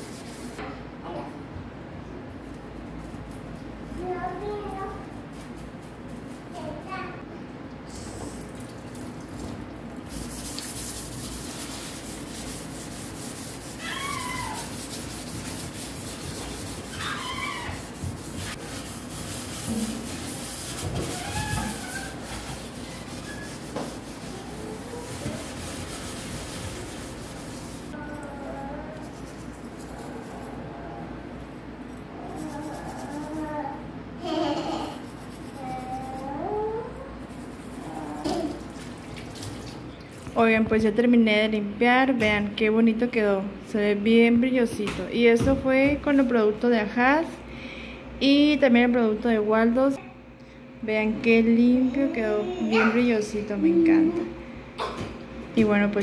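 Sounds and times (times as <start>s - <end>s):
scrubbing sink basin: 8.4s - 28.0s, 37.3s - 40.5s
child squealing and babbling: 13.8s - 14.8s, 16.9s - 17.9s, 21.1s - 22.2s, 32.2s - 35.0s, 37.8s - 38.6s, 52.3s - 53.1s.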